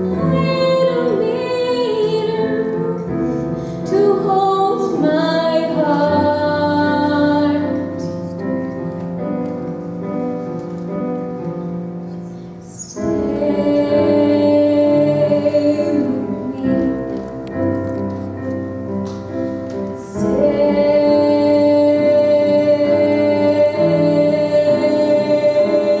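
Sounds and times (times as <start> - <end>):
instrumental accompaniment: 0.0 - 26.0
woman singing a ballad: 3.8 - 8.0, 13.1 - 17.4.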